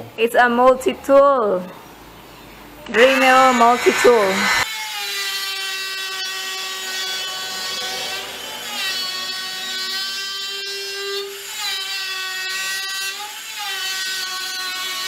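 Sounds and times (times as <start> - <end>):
rotary tool whining cutting wood: 2.9 - 6.8.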